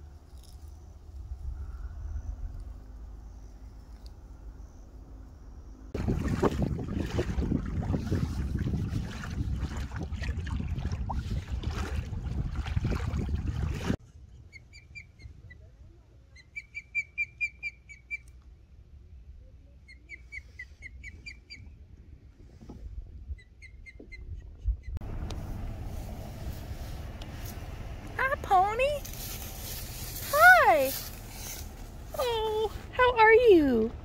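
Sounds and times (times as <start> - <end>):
wind buffeting microphone: 0.9 - 3.2, 5.9 - 14.0
water lapping: 6.0 - 14.0
osprey whistled chirps: 16.4 - 18.3.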